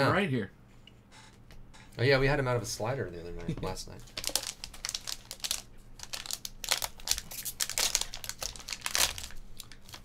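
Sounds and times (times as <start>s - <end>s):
foil wrapper crinkling: 4.1s - 10.0s.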